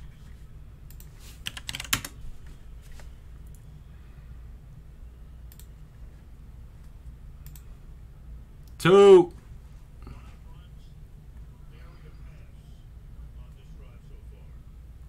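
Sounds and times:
steady low hum: 0:00.0 - 0:15.0
keyboard keystrokes: 0:00.9 - 0:02.2.

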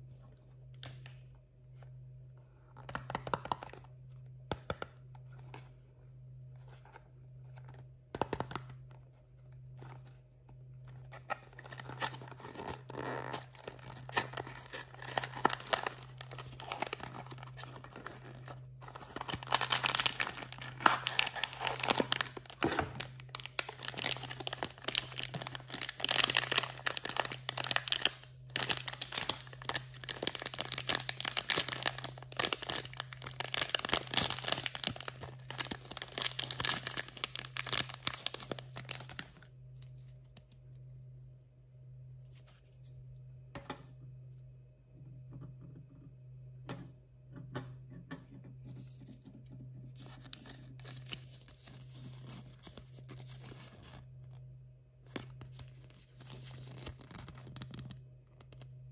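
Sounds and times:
packaging tearing and crinkling: 0:11.2 - 0:39.3, 0:55.4 - 0:57.9.

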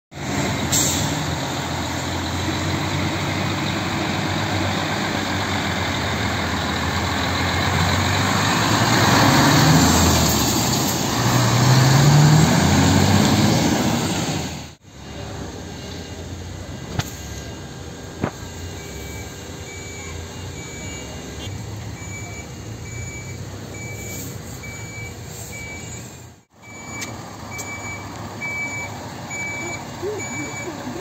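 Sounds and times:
fire truck diesel engine passing: 0:00.1 - 0:18.2
street noise: 0:00.1 - 0:31.0.

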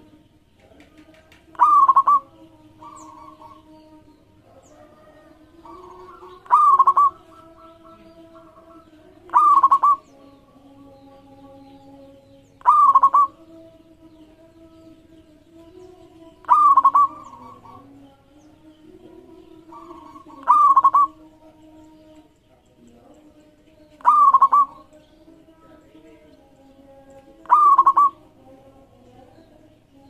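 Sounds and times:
doves cooing softly: 0:00.0 - 0:10.3, 0:12.6 - 0:13.5, 0:16.4 - 0:25.0, 0:27.1 - 0:28.5
dove trilled calls: 0:00.0 - 0:28.5.

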